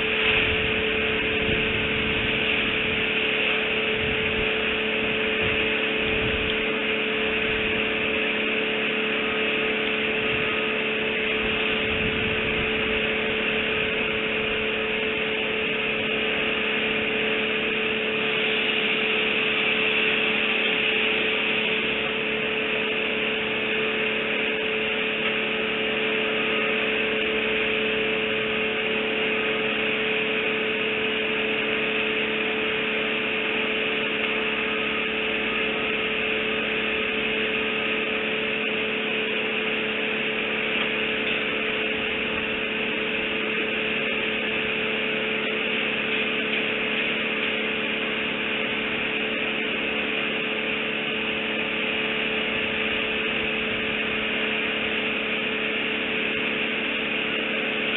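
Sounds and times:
low rumbling: 0.0s - 50.0s
constant hiss: 0.0s - 57.9s
steady hum: 0.0s - 57.9s.

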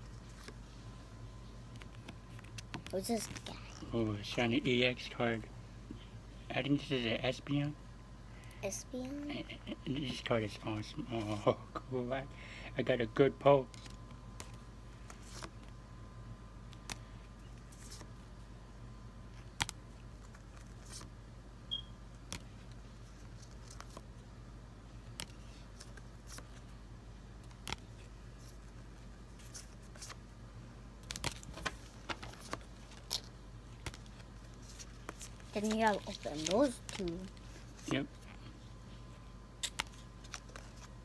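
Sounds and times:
trading cards clicking and snapping: 16.7s - 17.1s, 19.4s - 21.1s, 22.2s - 22.7s, 25.1s - 26.6s, 27.4s - 28.1s, 31.0s - 37.4s, 39.6s - 40.9s.

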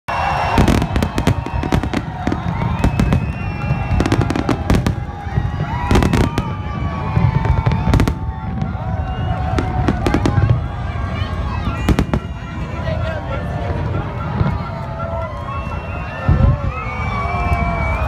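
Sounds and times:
fireworks bursting with sharp bangs: 0.2s - 13.0s.

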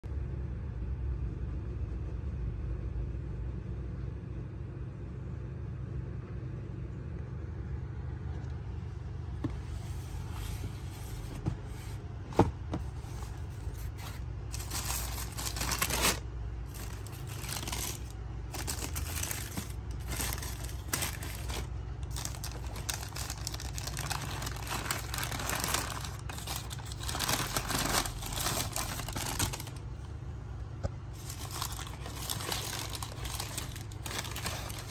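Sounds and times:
steady low hum: 0.0s - 34.9s
tissue paper rustling and crinkling: 9.6s - 29.8s, 31.1s - 34.9s.

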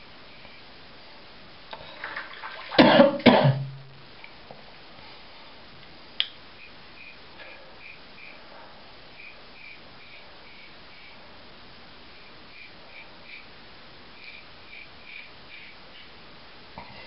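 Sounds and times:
man coughing: 2.8s - 3.7s.

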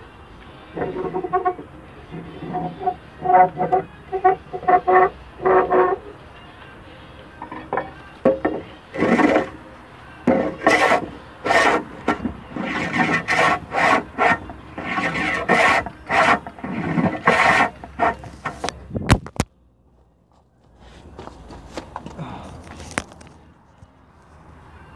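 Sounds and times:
hand plane cutting wood: 0.7s - 6.1s, 7.5s - 9.6s, 10.3s - 18.7s.

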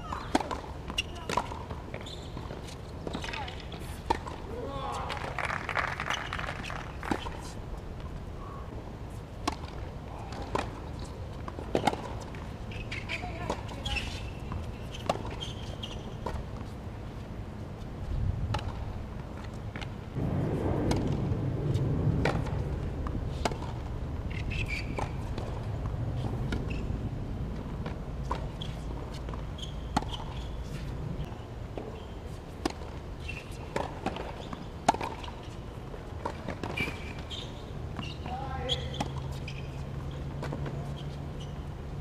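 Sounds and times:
tennis balls bouncing and struck: 0.0s - 7.6s, 9.4s - 16.8s, 18.5s - 20.2s, 20.8s - 42.0s
low rumble: 20.2s - 24.3s.

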